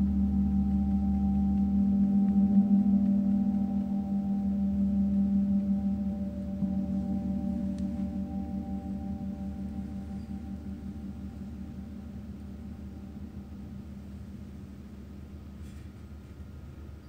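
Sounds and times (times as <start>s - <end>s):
gong ringing: 0.0s - 15.8s.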